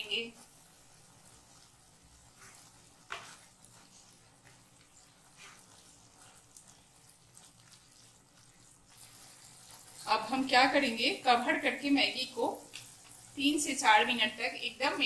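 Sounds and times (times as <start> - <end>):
spatula scraping and knocking pan: 0.0 - 6.4.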